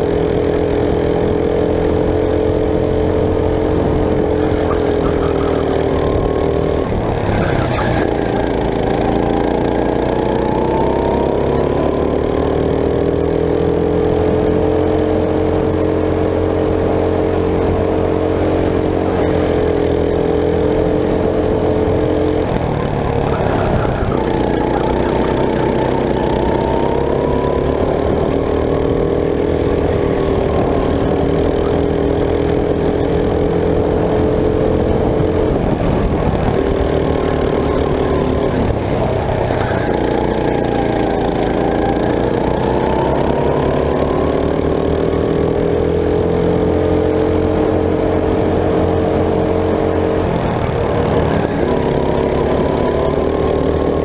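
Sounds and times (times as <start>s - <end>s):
go-kart engine running hard: 0.0s - 54.0s.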